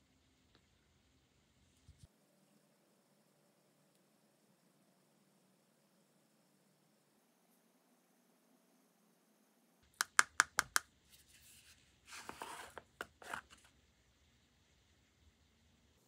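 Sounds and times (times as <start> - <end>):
lid scraping on threads: 12.1 - 13.7.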